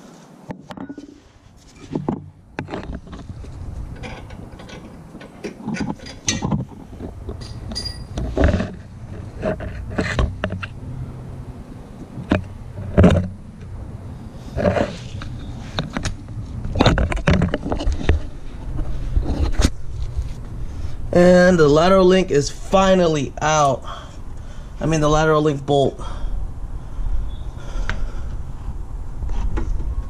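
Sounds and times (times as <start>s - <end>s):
metal knocks and clanks: 3.9s - 10.7s.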